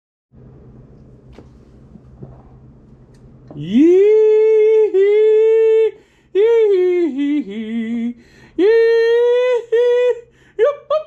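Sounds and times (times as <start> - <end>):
man singing long held notes: 3.6 - 11.0.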